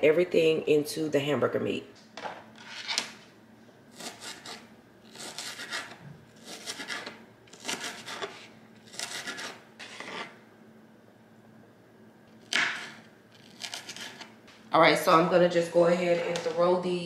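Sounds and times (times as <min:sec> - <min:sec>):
knife chopping on cutting board: 0:04.0 - 0:10.3, 0:12.4 - 0:14.3.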